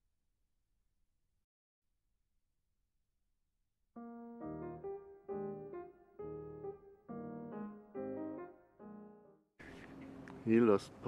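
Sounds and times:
slow piano music: 4.0 - 9.5.

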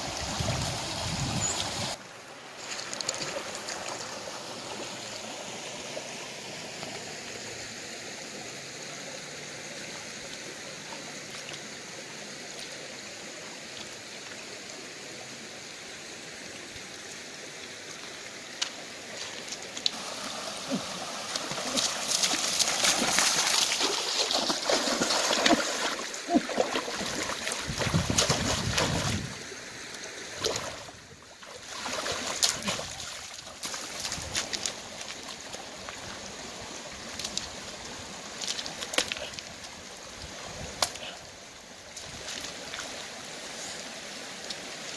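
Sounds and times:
stream trickling: 0.0 - 44.9
splashing in shallow water: 2.6 - 4.8, 18.5 - 36.4, 41.9 - 43.1.

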